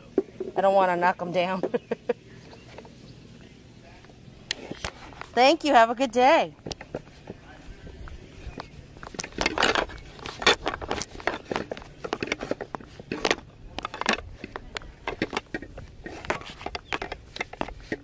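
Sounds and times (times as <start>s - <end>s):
footsteps on pavement: 6.6s - 9.2s.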